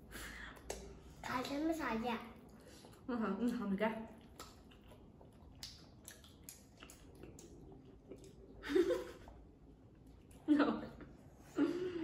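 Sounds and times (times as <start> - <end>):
close chewing: 2.4 - 8.6.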